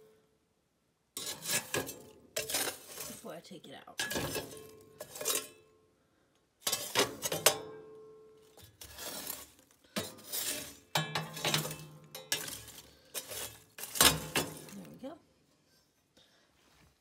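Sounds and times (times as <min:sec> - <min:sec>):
tool scraping and clanking on stove: 0:01.2 - 0:03.4, 0:04.0 - 0:05.7, 0:06.6 - 0:07.8, 0:08.5 - 0:14.9.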